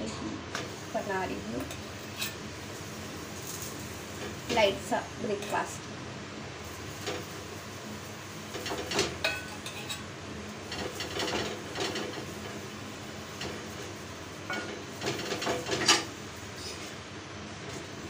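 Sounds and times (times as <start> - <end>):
steel utensils clinking on a bowl: 8.7 - 10.0.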